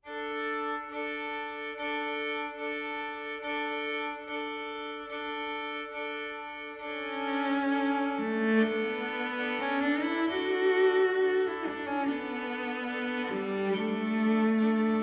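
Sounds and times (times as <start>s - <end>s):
bowed violin slow notes: 0.0s - 15.0s.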